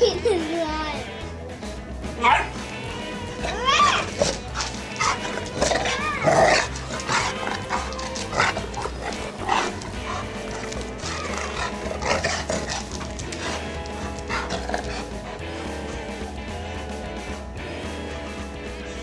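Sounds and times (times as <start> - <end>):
background music with held tones: 0.0 - 19.0
dog vocalisations: 3.4 - 15.4
dogs scuffling: 3.4 - 16.2.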